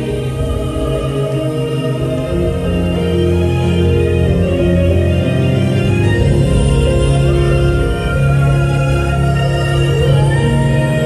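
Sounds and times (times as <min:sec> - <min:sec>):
long held chords: 0:00.0 - 0:11.0
deep bass: 0:05.8 - 0:11.0.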